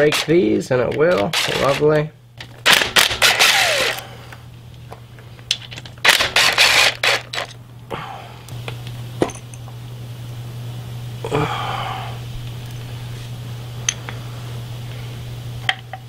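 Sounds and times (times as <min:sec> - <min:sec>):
impact driver hammering: 0:01.1 - 0:01.8, 0:02.6 - 0:04.0, 0:06.1 - 0:07.2.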